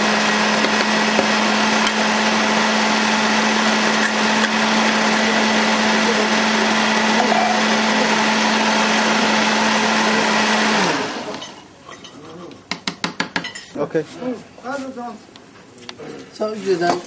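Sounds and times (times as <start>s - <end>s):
blender motor whirring: 0.0s - 11.5s.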